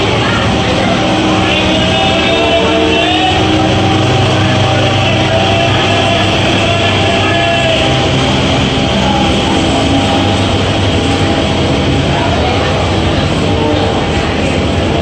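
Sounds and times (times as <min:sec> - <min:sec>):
music playing: 0:00.0 - 0:15.0
train coaches rolling past: 0:00.0 - 0:15.0.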